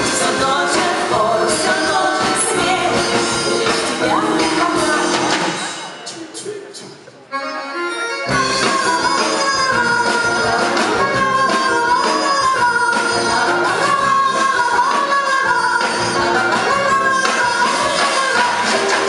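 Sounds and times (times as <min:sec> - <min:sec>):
accordion melody: 0:00.0 - 0:05.7, 0:07.3 - 0:19.0
drum kit: 0:00.0 - 0:07.2, 0:08.3 - 0:19.0.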